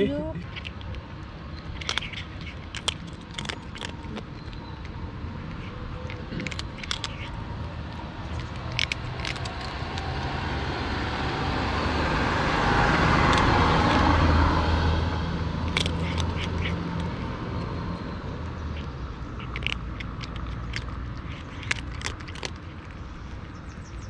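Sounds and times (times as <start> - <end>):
cat crunching dry kibble: 0.4 - 24.0
car passing by: 8.7 - 18.8.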